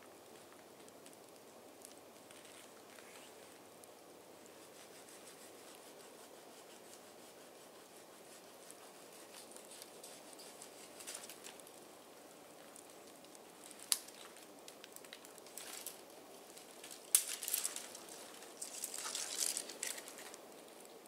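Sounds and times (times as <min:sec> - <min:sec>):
twigs crackling and snapping: 0:09.3 - 0:21.0.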